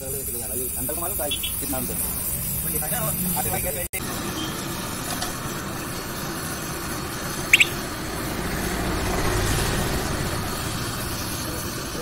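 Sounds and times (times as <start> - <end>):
gas flames rushing: 0.0 - 12.0
high double squeak: 7.5 - 7.8.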